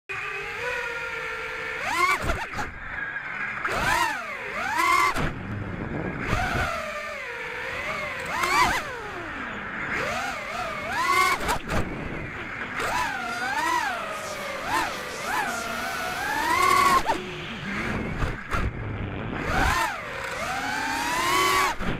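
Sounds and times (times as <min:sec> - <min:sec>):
quadcopter motors whining: 0:00.1 - 0:21.9
wind noise rushes: 0:05.2 - 0:06.7.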